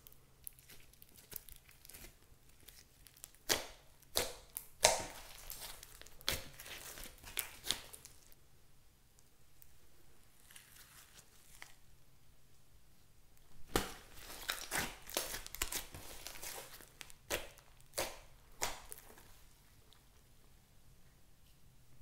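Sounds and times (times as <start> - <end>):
hands squishing slime: 0.0 - 8.4, 13.5 - 20.0.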